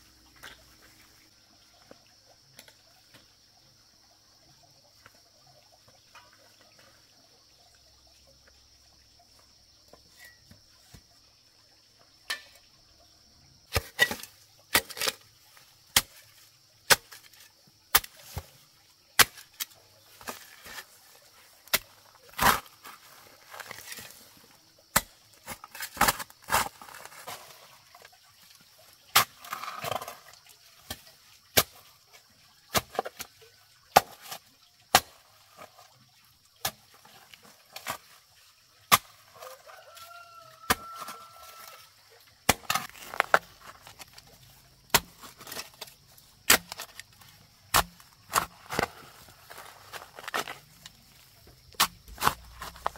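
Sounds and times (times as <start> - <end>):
rooster crowing: 39.4 - 41.8.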